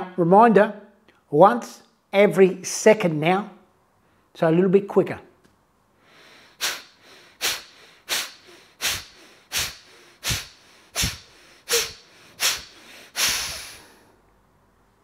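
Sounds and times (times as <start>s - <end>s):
long exhaled breath: 6.0s - 14.3s
man breathing forcefully through nose: 6.0s - 14.3s.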